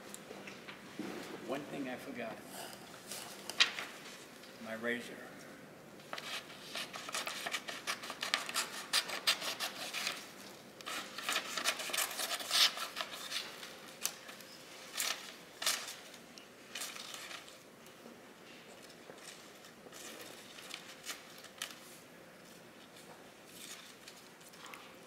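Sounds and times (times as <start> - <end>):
paper rustling: 3.0 - 4.3, 6.0 - 17.7, 18.8 - 25.0
razor blade cutting paper: 6.7 - 10.2, 10.9 - 13.4.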